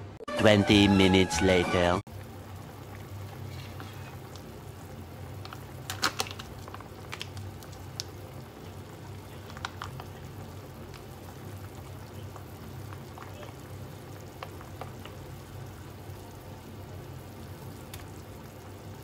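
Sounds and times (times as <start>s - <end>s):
soup bubbling in a pot: 2.1s - 19.0s.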